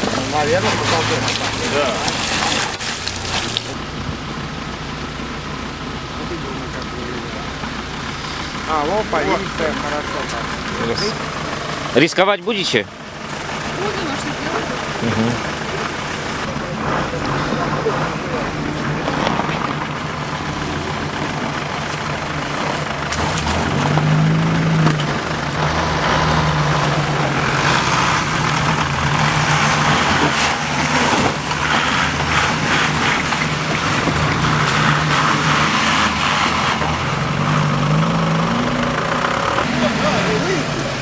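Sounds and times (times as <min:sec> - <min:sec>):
tyres spinning in slush: 0:00.0 - 0:03.8, 0:06.2 - 0:41.0
vehicle engines straining: 0:00.0 - 0:41.0.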